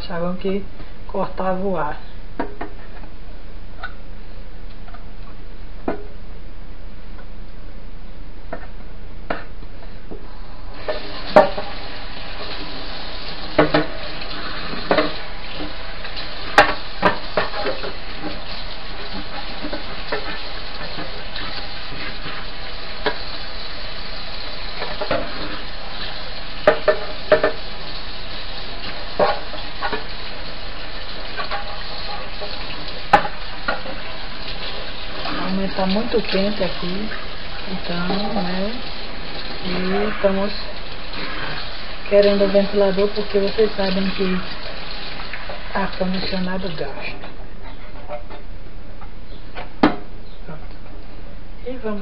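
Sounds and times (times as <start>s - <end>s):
tap water running into sink: 10.8s - 47.0s
plastic knocking against sink: 26.6s - 27.6s, 49.6s - 50.1s.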